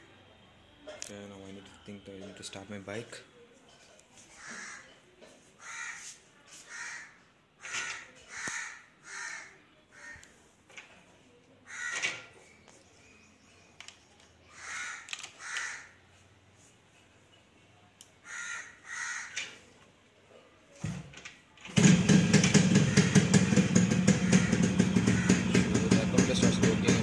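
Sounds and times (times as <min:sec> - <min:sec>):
crows cawing: 0:04.3 - 0:05.0, 0:05.6 - 0:10.3, 0:11.7 - 0:12.3, 0:14.5 - 0:16.0, 0:18.2 - 0:19.6, 0:22.8 - 0:23.4, 0:24.0 - 0:25.8.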